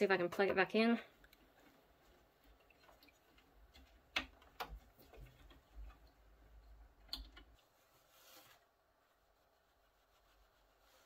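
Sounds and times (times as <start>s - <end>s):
soft rubbing: 7.6s - 11.0s.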